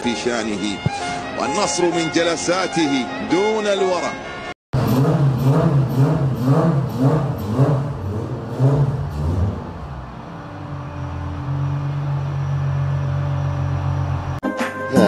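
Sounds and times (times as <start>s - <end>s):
car engine running steadily: 4.8s - 14.4s.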